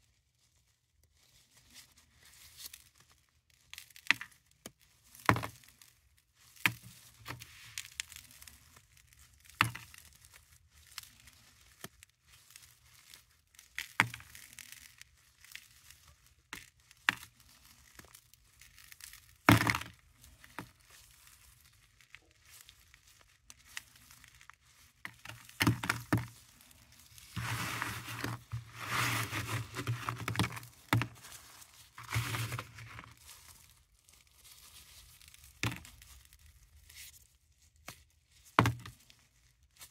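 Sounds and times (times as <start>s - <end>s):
tablets crunching and grinding: 25.0s - 33.4s.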